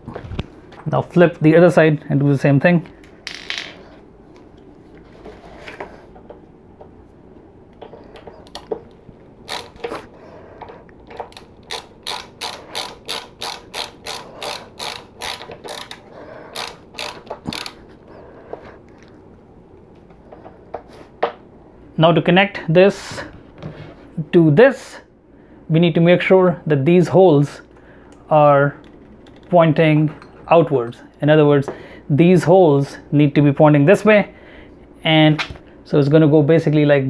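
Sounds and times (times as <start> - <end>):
screwdriver ratcheting clicks: 9.5 - 9.9, 11.1 - 17.8.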